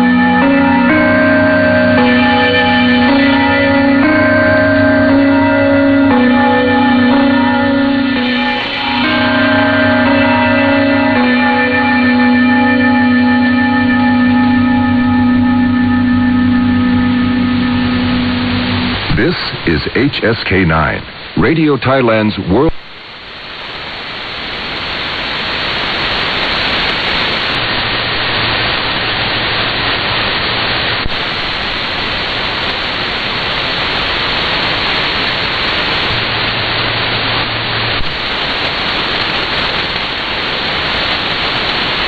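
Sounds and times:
radio static hiss: 18.5s - 42.0s.

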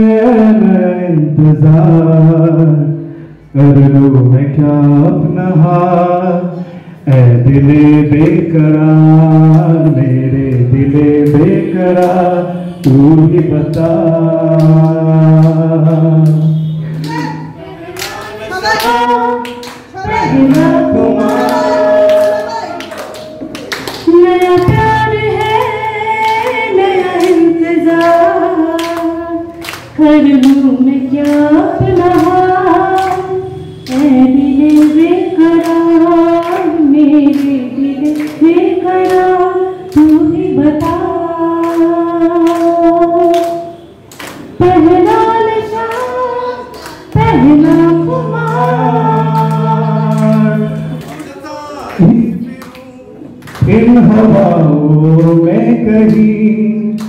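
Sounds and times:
high voice singing: 12.9s - 43.8s, 44.6s - 57.0s
percussion beats: 13.7s - 57.0s
low held note: 20.2s - 24.3s.

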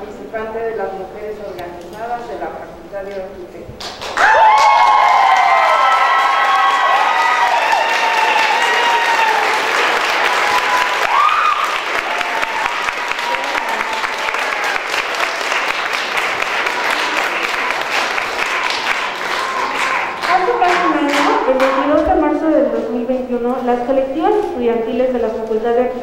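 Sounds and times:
crowd applauding: 3.8s - 21.9s.

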